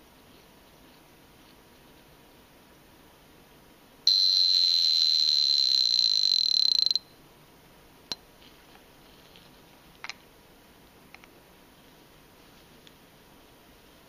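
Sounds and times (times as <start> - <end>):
watch alarm buzzing ring: 4.1 - 7.1.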